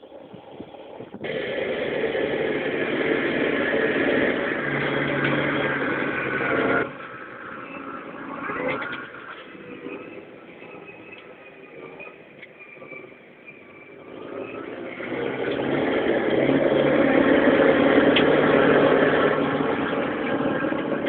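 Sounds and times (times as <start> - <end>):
engine running loudly: 1.2 - 21.0.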